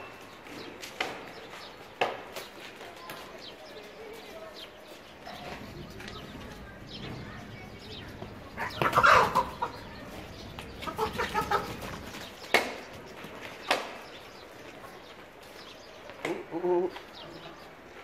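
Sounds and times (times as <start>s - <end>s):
farm animals calling: 7.9s - 12.3s.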